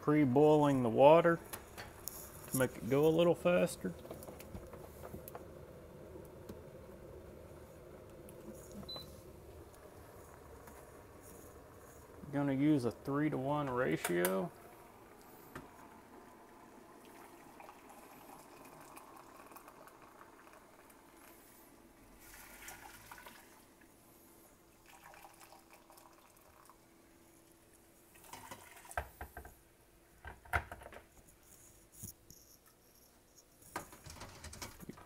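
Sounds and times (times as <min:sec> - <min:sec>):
water pouring into metal pot: 0:16.9 - 0:21.4, 0:22.1 - 0:23.8, 0:24.7 - 0:26.8, 0:28.1 - 0:29.1.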